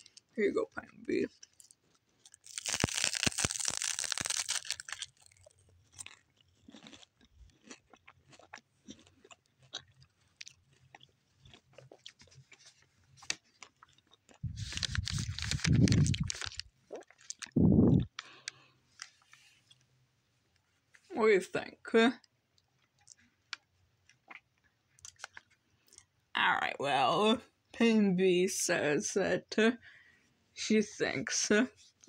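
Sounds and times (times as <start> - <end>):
crunchy seaweed snack chewing: 1.3 - 19.9, 22.6 - 26.1.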